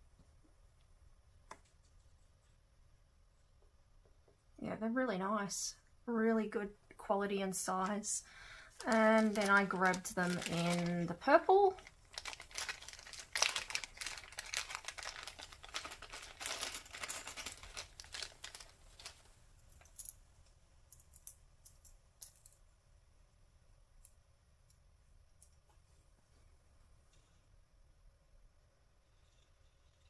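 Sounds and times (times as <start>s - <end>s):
plastic bag crinkling: 8.6s - 19.3s.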